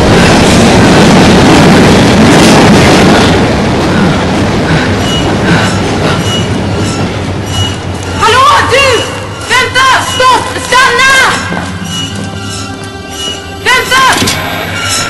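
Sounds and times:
subway train rumbling in tunnel: 0.0 - 15.0
wheel squeaks: 6.1 - 15.0.

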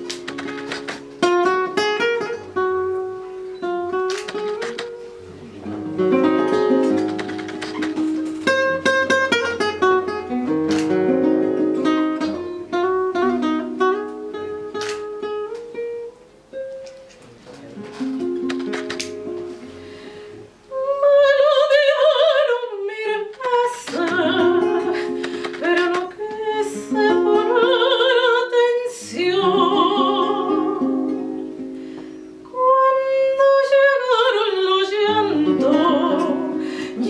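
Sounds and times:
classical guitar plucking: 0.0 - 37.0
woman singing operatically: 20.7 - 31.1, 32.5 - 37.0.

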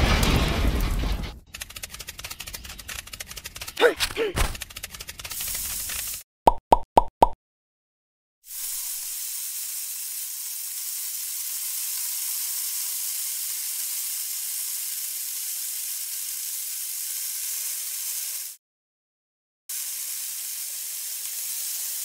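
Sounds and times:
trowel scraping sand: 2.4 - 6.2.

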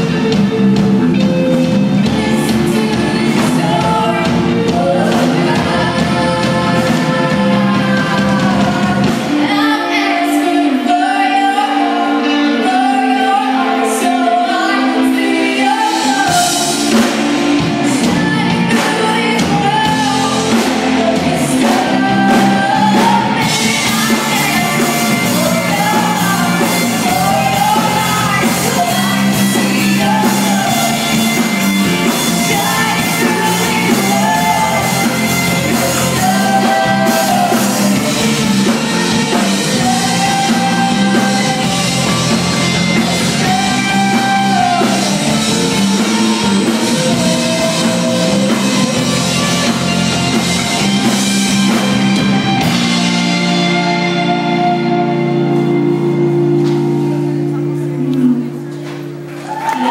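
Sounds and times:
live rock band playing: 0.0 - 59.9
woman singing lead: 0.0 - 59.9.

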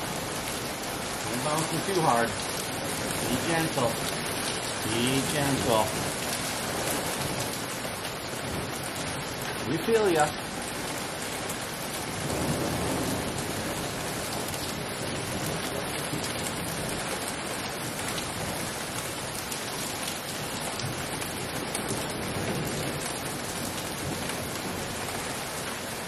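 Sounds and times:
heavy rain with hail: 0.0 - 26.0
low thunder rumble: 12.0 - 17.1.

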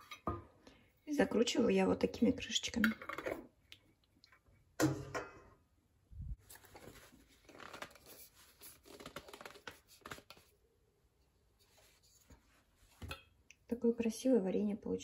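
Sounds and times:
cloth rustling and scraping: 6.3 - 10.6, 11.4 - 13.2.

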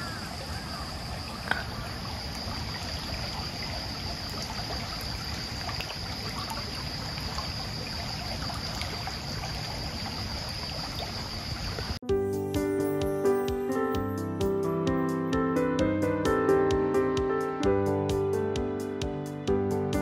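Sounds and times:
stream trickling over pebbles: 0.2 - 12.0.

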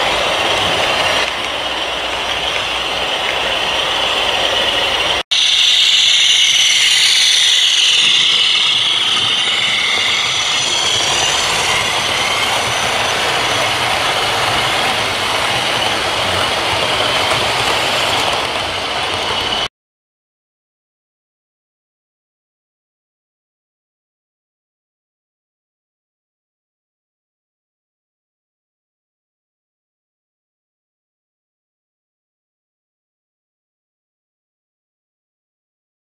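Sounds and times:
model diesel engine sound: 0.0 - 19.7
wheel noise on track: 0.0 - 19.7.

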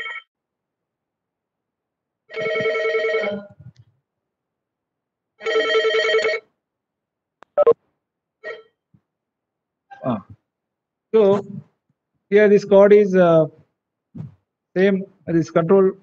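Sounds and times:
electronic telephone ringing: 0.0 - 0.2, 2.3 - 3.4, 5.4 - 6.4.

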